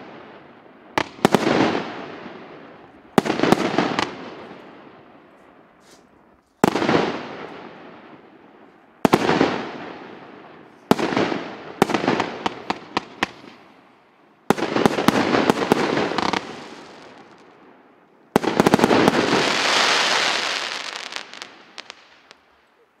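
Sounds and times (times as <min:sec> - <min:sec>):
firework bangs: 0:00.0 - 0:05.0, 0:09.0 - 0:13.6, 0:14.4 - 0:17.6, 0:18.4 - 0:22.4
firework crackling: 0:14.5 - 0:17.6, 0:18.4 - 0:22.6.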